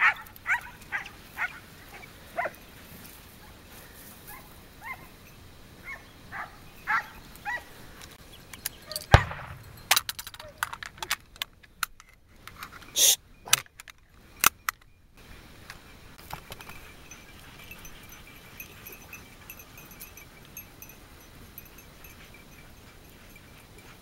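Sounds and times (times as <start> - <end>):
dog bells jingling: 0.0 - 7.8, 8.5 - 11.1, 16.3 - 24.0
outdoor noise: 0.0 - 24.0
loud sharp cracks: 9.1 - 10.4.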